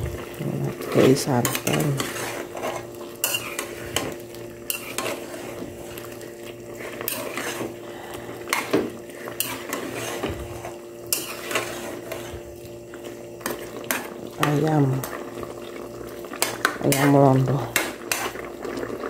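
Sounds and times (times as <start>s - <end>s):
steady low hum: 0.0s - 19.0s
metal spoon scraping a wok: 0.9s - 6.0s, 6.7s - 12.5s, 16.4s - 18.4s.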